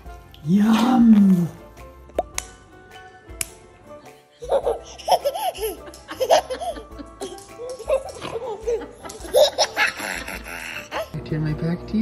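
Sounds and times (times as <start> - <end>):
background music: 0.0 - 12.0
baby giggling: 4.4 - 11.1.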